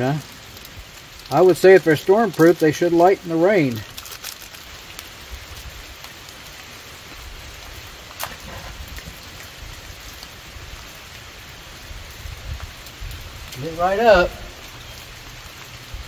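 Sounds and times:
rain pattering: 0.0s - 16.0s
fire starter scratch: 8.2s - 9.3s.

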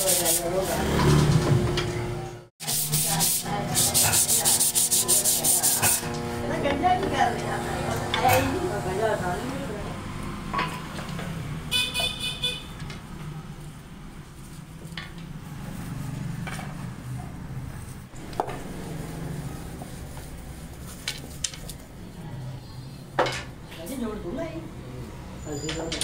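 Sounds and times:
vehicle horn toot: 11.7s - 12.8s.

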